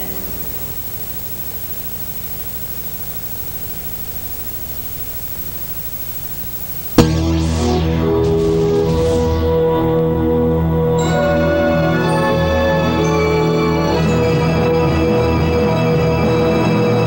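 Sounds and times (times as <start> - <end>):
faint low hum: 0.0 - 10.6
tape hiss: 0.0 - 14.7
sharp pop: 6.9 - 9.4
loud music: 7.0 - 11.4.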